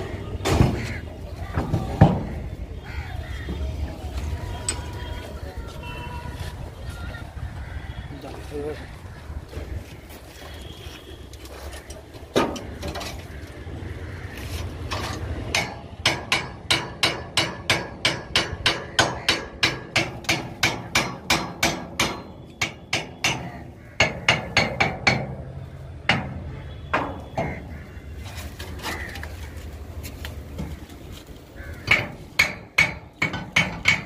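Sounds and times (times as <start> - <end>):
hammer striking steel: 15.5 - 25.4, 31.9 - 34.0.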